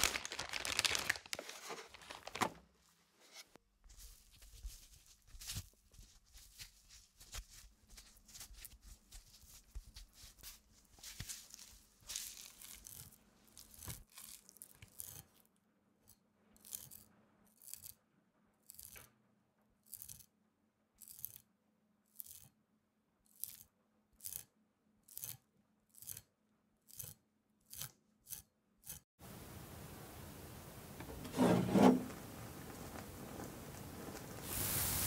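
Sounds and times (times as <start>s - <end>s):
hands handling raw meat: 3.7s - 14.9s
knife scraping cuts on meat: 31.3s - 32.1s.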